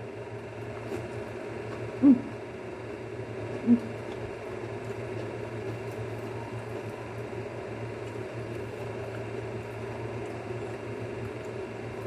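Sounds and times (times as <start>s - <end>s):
appliance hum and hiss: 0.0s - 12.0s.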